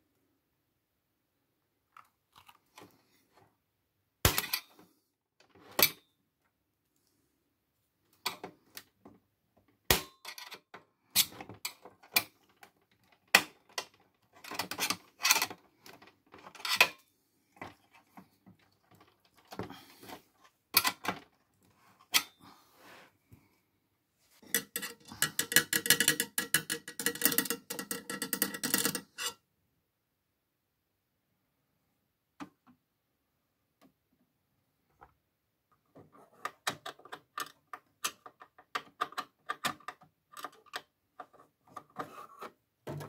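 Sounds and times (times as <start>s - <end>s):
metallic clicks and knocks: 24.5s - 29.3s.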